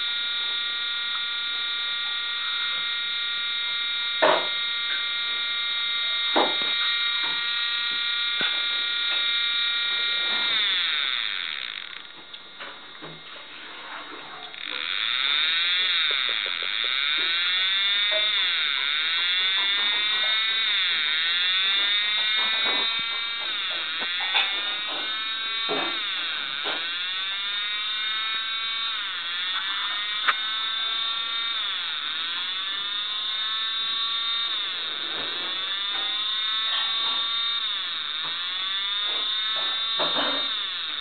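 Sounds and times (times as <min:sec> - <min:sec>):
fan siren wailing: 0:14.5 - 0:41.0.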